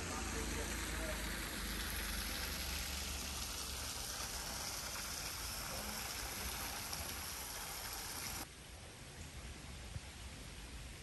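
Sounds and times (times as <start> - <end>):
water falling into pond: 0.0 - 8.5.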